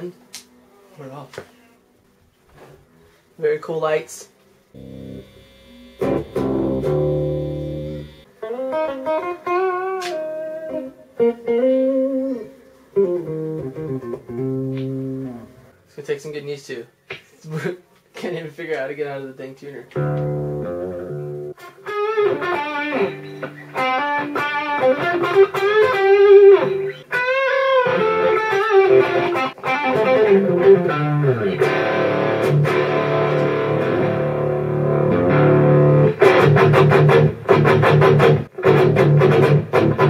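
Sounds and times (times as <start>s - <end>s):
electric guitar playing: 4.8s - 15.7s, 19.9s - 40.0s.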